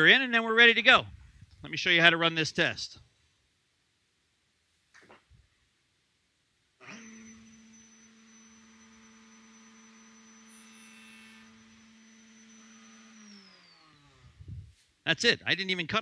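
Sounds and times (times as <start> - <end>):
router cutting wood: 6.8 - 14.5
router whining: 6.8 - 14.7.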